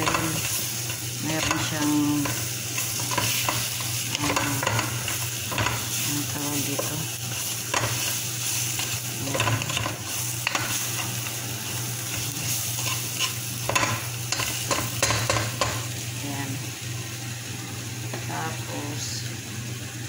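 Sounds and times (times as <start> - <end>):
spatula scraping and knocking pot: 0.0 - 6.0, 6.6 - 11.3, 12.1 - 15.8
chicken sizzling in a pot: 0.0 - 20.0.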